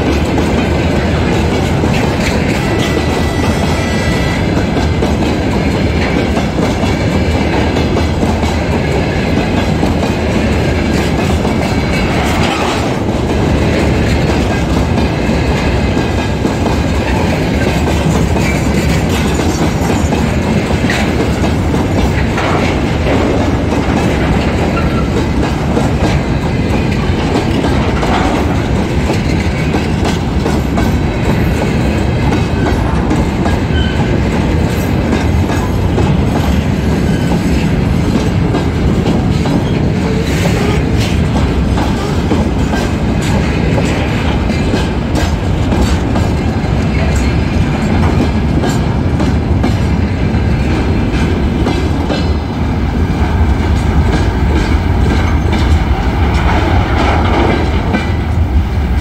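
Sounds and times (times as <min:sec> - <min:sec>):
freight train rumbling past: 0:00.0 - 0:59.0
wheels clattering over rail joints: 0:04.4 - 0:50.0.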